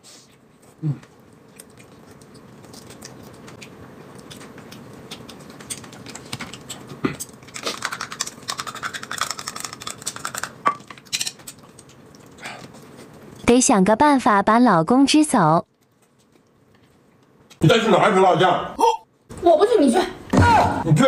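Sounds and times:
chewing: 0.3 - 13.4, 15.7 - 17.6.

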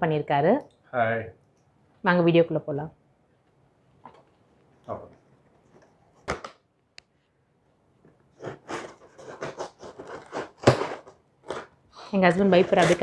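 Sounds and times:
knife cutting tape on cardboard: 8.4 - 11.7.

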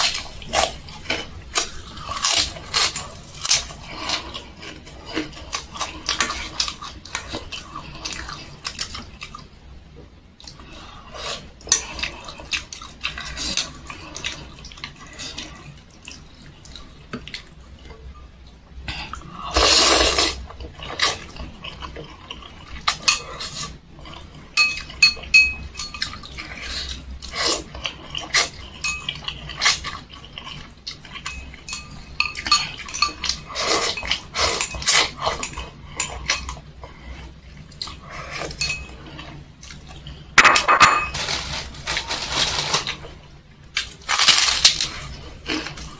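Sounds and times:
person chewing and slurping: 18.9 - 40.4
chopsticks clinking on metal bowl: 24.6 - 26.2, 28.8 - 29.3, 31.1 - 36.6, 38.5 - 39.0.

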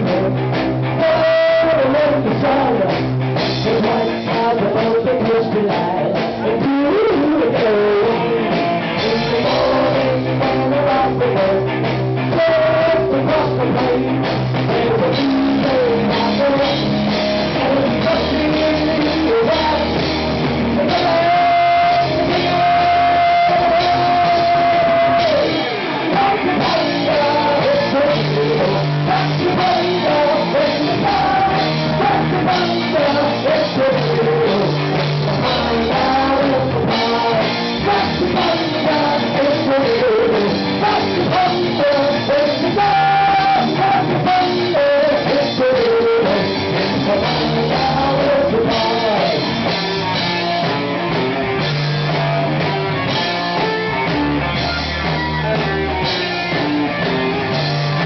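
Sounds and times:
drum kit: 0.0 - 58.0
person singing: 0.0 - 58.0.

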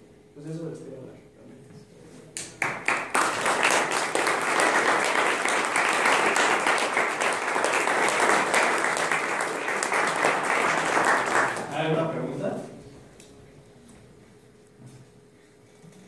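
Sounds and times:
audience applauding: 2.6 - 12.0.

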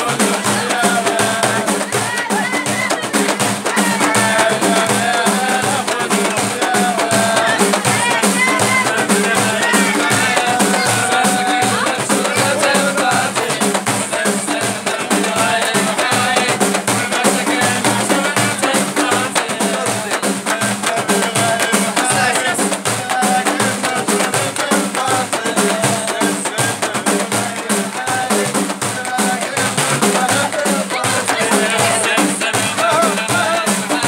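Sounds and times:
frame drums beaten: 0.0 - 34.0
men singing: 0.0 - 34.0.

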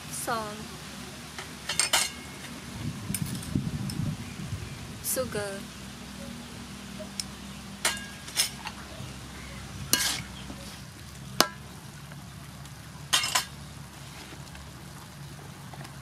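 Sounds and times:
metal spatula scraping a wok: 9.9 - 10.3.

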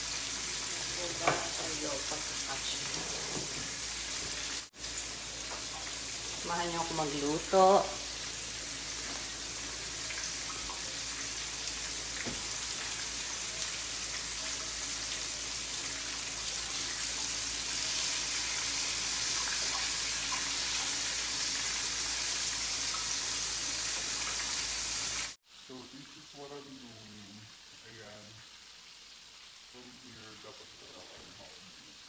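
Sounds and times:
fish sizzling in oil: 0.0 - 32.0
oil popping and crackling: 8.2 - 23.2.

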